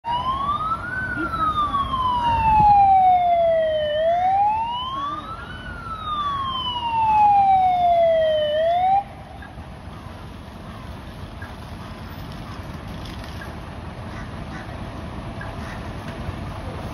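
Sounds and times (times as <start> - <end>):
emergency vehicle siren wailing: 0.0 - 11.1.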